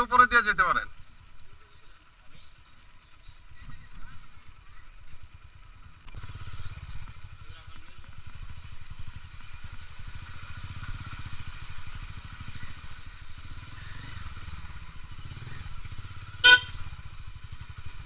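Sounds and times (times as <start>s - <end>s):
motorcycle engine running slowly: 0.0s - 18.0s
motorcycle horn beep: 16.4s - 17.0s.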